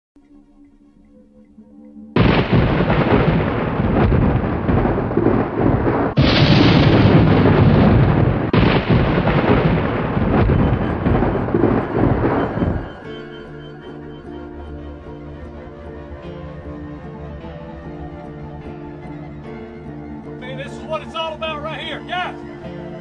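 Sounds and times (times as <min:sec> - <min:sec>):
thunder cracks and rumble: 0:02.2 - 0:13.4.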